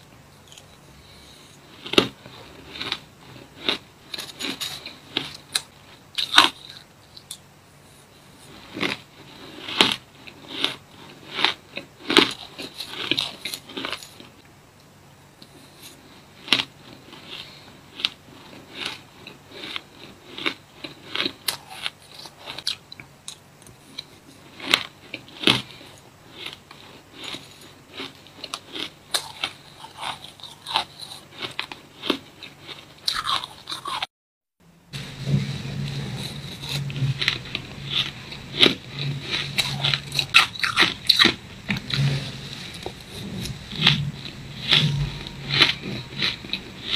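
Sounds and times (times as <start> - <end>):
chewing crunchy shaved ice: 0.4 - 7.4, 8.2 - 14.4, 15.4 - 34.1, 35.9 - 46.9
low hum: 34.6 - 46.9.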